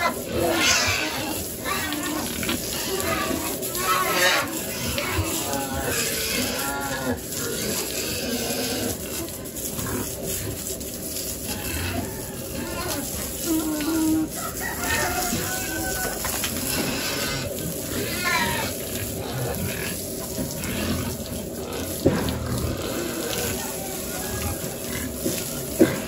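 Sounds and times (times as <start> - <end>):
pigs squealing: 0.0 - 26.0
water spraying from a hose: 0.0 - 26.0.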